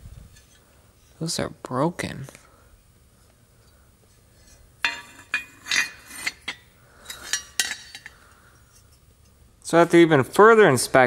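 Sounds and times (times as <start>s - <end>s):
metal brackets clattering on concrete: 4.8s - 8.2s.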